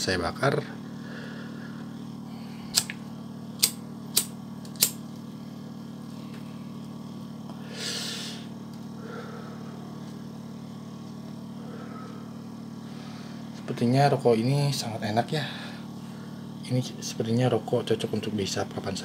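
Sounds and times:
low hum: 0.6 - 17.7
breathy exhale: 1.0 - 2.8, 7.5 - 10.0, 11.5 - 13.5, 15.4 - 16.5
sharp clicks: 2.7 - 3.0, 3.6 - 5.0.

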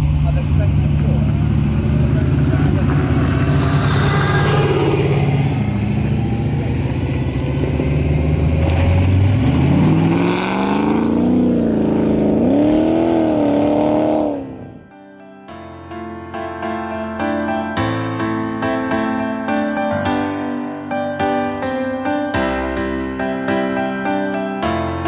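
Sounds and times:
buggy engine revving: 0.0 - 14.8
soft piano music: 14.8 - 25.0.

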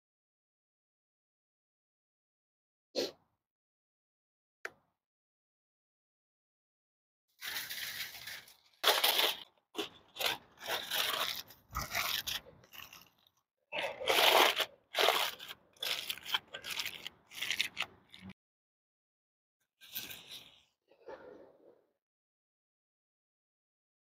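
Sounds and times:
aluminium foil crinkling: 7.4 - 18.3.

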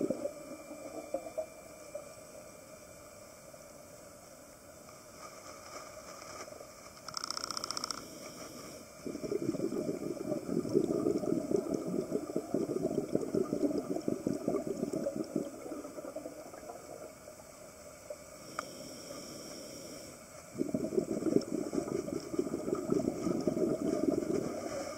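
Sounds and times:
regulator inhale hiss: 7.8 - 9.1, 18.3 - 20.6
regulator exhale bubbling: 8.3 - 17.2, 18.4 - 24.9.

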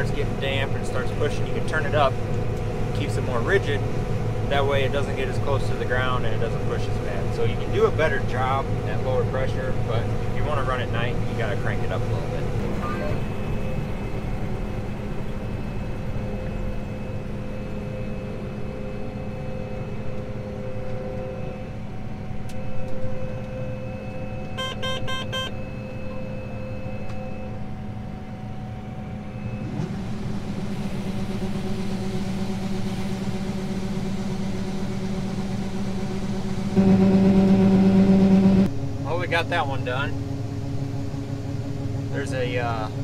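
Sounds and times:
combine harvester machinery drone: 0.0 - 43.0
rapid electronic beeps: 24.6 - 25.6.

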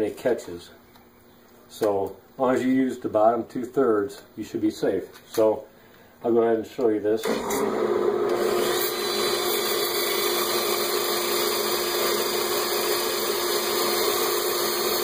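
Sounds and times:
wood lathe motor hum: 7.2 - 15.0.

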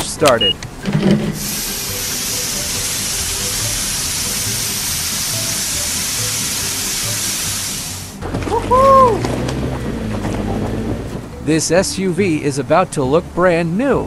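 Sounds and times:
quiet background music: 0.1 - 14.0
water spraying from nozzle: 1.4 - 8.2.

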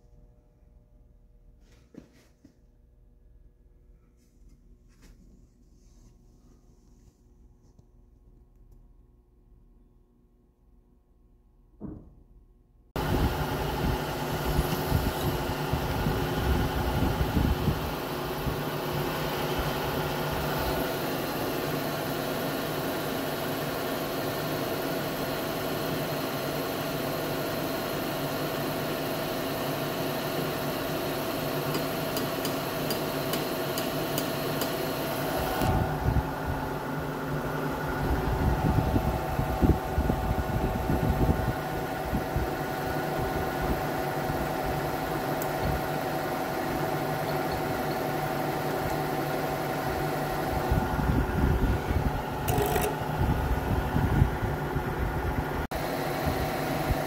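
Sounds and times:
milling machine motor humming: 13.0 - 40.9, 41.6 - 57.0.

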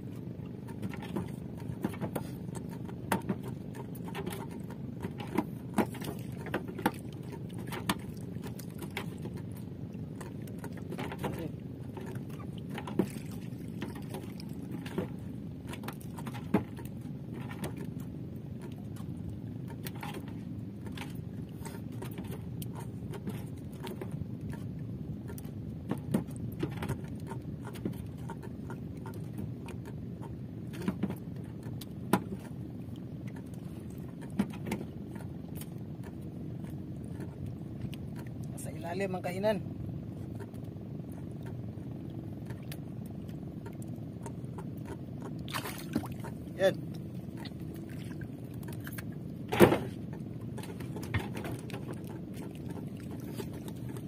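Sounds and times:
steady low rumble: 0.0 - 54.0
sharp knocks and clicks: 0.6 - 9.5.

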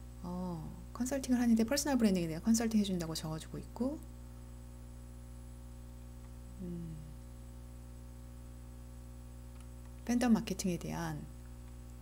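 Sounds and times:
electrical mains hum: 0.0 - 12.0
soft voice murmur: 6.6 - 7.2.

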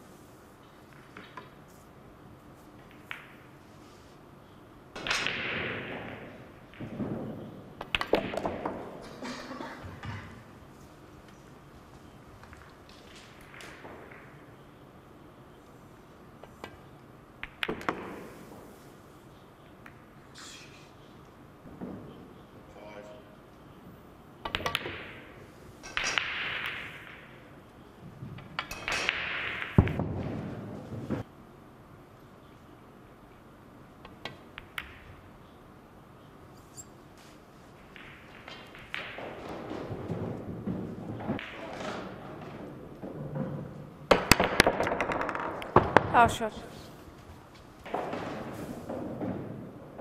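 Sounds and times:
pool balls clicking: 2.6 - 3.7, 5.0 - 9.2, 9.9 - 14.6, 16.4 - 18.5, 24.4 - 31.3, 34.0 - 35.4, 37.4 - 46.5.

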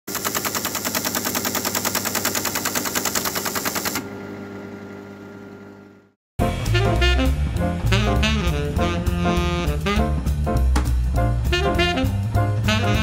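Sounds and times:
motor hum: 3.9 - 6.1.

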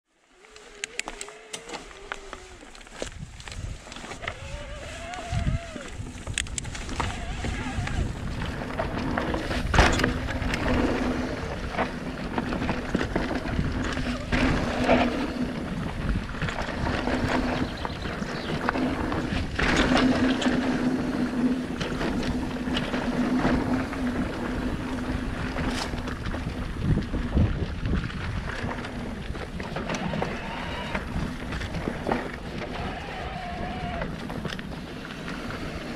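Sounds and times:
bike tyres rolling over dirt: 0.1 - 35.9
wind on microphone: 0.4 - 35.9
bike knocks and rattles: 5.9 - 33.0.

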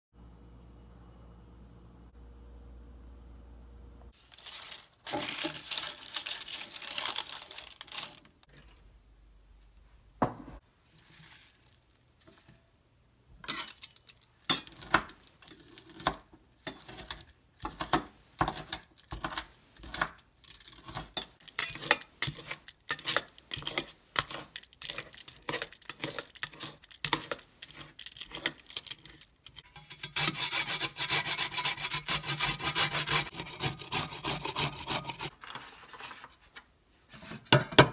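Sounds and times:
baking paper rustling: 4.2 - 8.6, 10.7 - 12.5, 34.8 - 37.6
carrot grated on metal grater: 19.2 - 35.3.

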